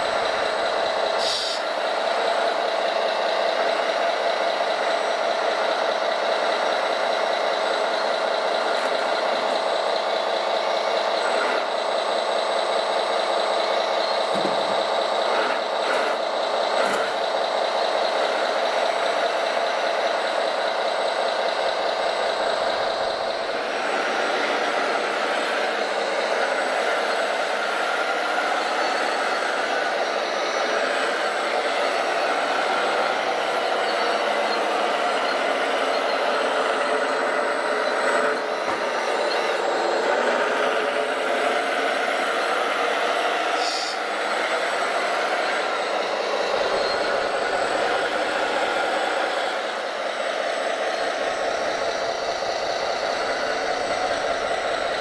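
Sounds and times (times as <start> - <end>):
model machine noise: 0.0 - 55.0.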